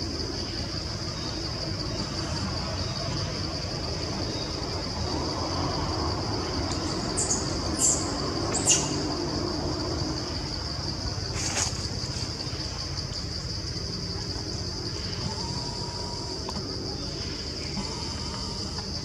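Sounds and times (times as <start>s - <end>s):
high-pitched insect drone: 0.0s - 19.0s.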